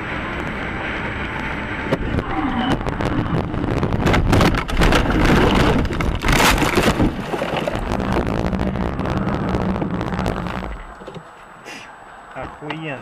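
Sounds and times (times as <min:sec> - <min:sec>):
car driving over rough ground: 0:00.0 - 0:11.4
gravel hitting car body: 0:03.9 - 0:08.8.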